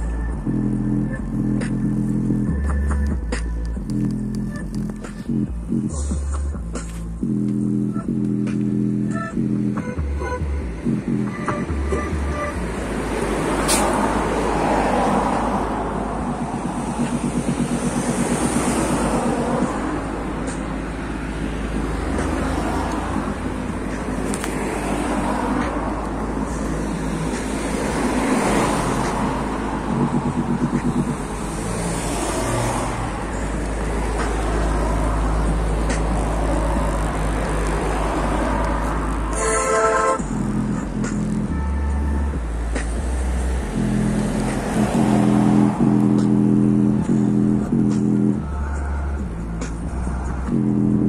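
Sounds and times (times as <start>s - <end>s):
deep bass notes from speaker: 0.0s - 12.9s, 40.2s - 51.0s
loud noisy wash: 12.6s - 39.5s.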